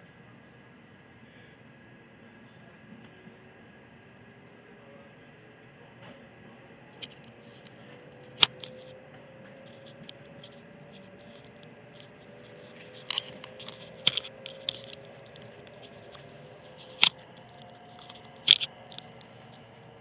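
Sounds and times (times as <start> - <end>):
steady train hum: 0.0 - 20.0
train motor whine: 6.1 - 20.0
sharp clicks: 16.7 - 19.2.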